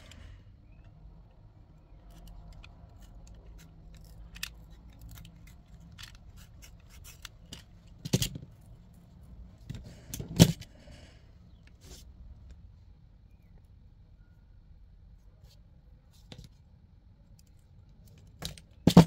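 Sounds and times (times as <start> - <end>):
metal parts clicking and clinking: 2.0 - 8.6.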